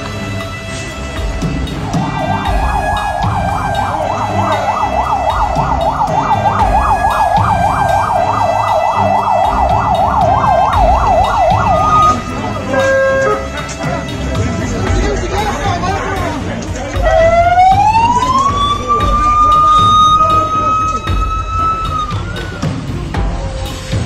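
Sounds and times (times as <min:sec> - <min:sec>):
siren yelping: 0:01.8 - 0:13.6, 0:17.0 - 0:22.8.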